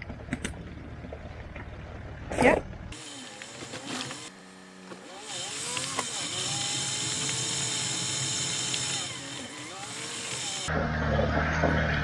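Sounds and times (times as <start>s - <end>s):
engine whine with revs: 2.9s - 12.0s.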